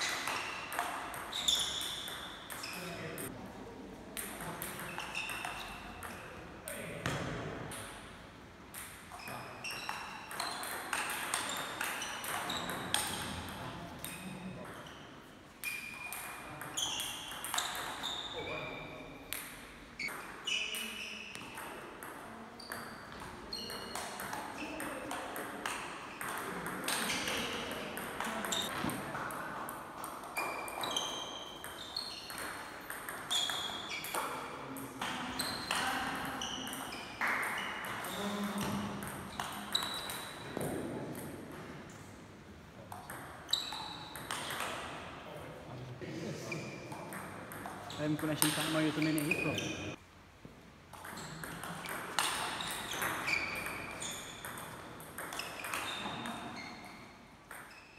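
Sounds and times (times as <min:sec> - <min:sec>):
ping pong ball hitting bats: 0:00.0 - 0:03.3, 0:04.2 - 0:14.9, 0:15.6 - 0:18.6, 0:19.2 - 0:41.8, 0:42.8 - 0:45.0, 0:46.9 - 0:50.0, 0:50.9 - 0:57.7
ball bouncing on table: 0:07.0 - 0:08.0, 0:08.7 - 0:15.0, 0:15.6 - 0:18.0, 0:19.3 - 0:41.8, 0:42.9 - 0:44.9, 0:46.9 - 0:50.0, 0:50.9 - 0:56.6.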